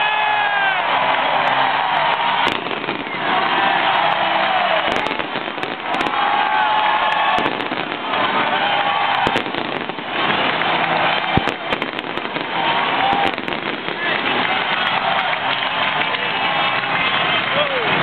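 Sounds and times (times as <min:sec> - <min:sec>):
crowd cheering: 0:00.0 - 0:18.0
sharp crackles: 0:02.1 - 0:15.9.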